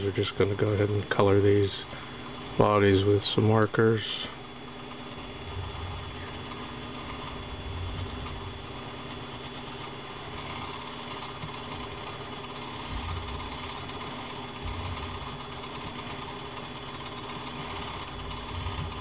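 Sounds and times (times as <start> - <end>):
mechanical hum: 0.0 - 19.0
soft low thumps: 7.0 - 8.7, 12.8 - 13.7, 14.6 - 15.6.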